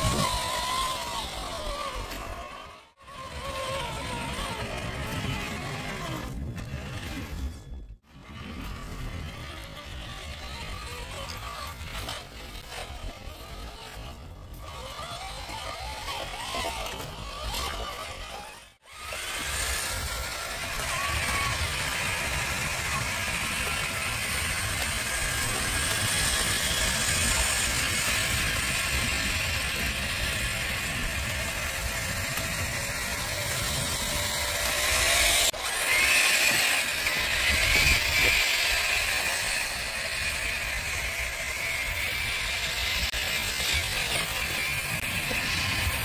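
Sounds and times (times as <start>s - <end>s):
toy truck motor and gears whirring: 0.0s - 46.0s.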